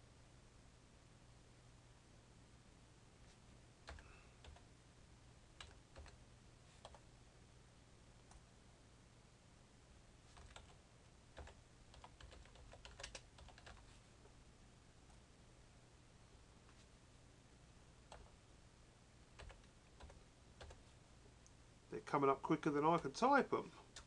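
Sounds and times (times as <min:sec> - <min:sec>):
low steady hum: 0:00.0 - 0:24.0
typing on computer keyboard: 0:03.9 - 0:04.7, 0:05.6 - 0:06.2, 0:10.3 - 0:10.8, 0:11.4 - 0:13.9, 0:19.4 - 0:20.9.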